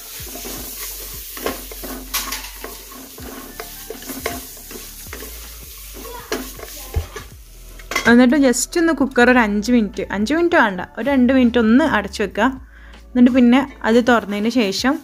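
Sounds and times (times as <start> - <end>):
wooden spatula scraping: 0.0 - 8.1, 13.2 - 15.0
food sizzling in oil: 0.0 - 9.6, 13.2 - 15.0.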